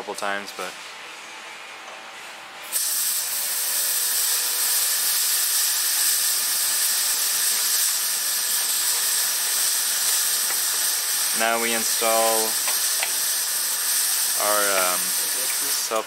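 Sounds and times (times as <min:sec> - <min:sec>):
welding sizzling hiss: 0:02.6 - 0:16.0.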